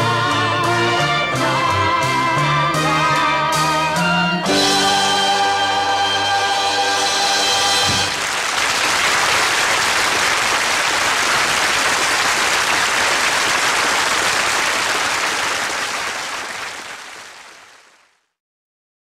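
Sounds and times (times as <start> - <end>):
audience applause: 7.7 - 18.2.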